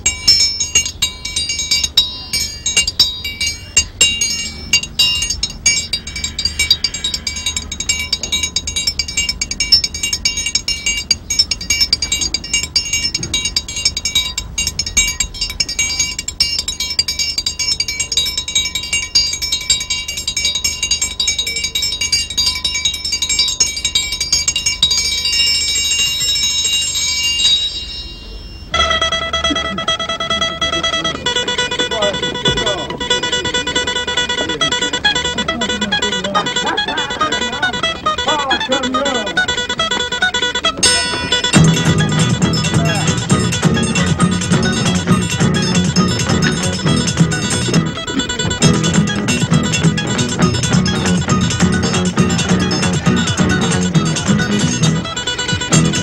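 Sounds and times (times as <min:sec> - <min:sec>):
pitched instrument note: 0:00.0 - 0:19.9, 0:27.6 - 0:56.0
small metal bells ringing: 0:00.0 - 0:56.0.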